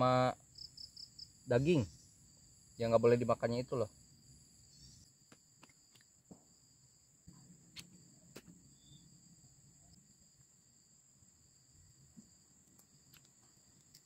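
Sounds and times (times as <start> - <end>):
insect chirring: 0.0 - 14.0.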